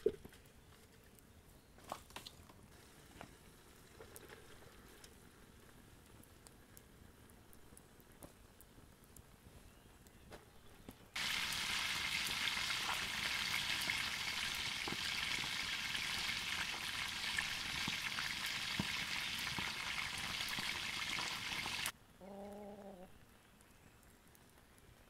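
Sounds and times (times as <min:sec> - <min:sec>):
fish sizzling in hot oil: 0:11.2 - 0:21.9.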